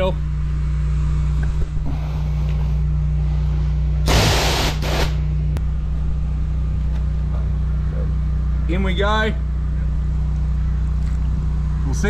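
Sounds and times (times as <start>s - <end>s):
water blast hiss: 4.1s - 5.2s.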